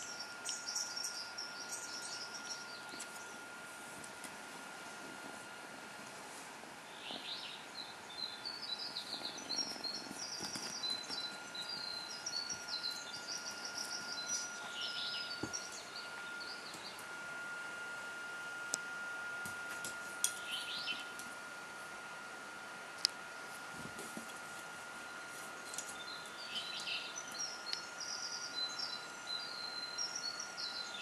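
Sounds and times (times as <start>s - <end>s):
songbird chirping and trilling: 0.0s - 3.4s, 6.8s - 17.1s, 20.3s - 21.2s, 25.1s - 31.0s
faint high-pitched whine: 0.0s - 31.0s.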